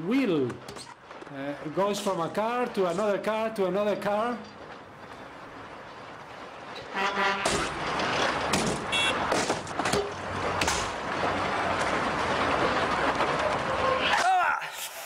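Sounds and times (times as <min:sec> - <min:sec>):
cars driving past: 0:01.0 - 0:14.2
sharp knocks: 0:07.4 - 0:11.0.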